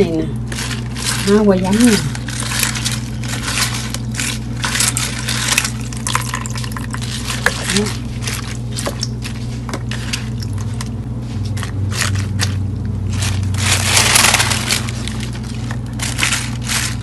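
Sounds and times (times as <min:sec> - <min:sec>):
steady low hum: 0:00.0 - 0:17.0
wet leaves rustling: 0:00.4 - 0:17.0.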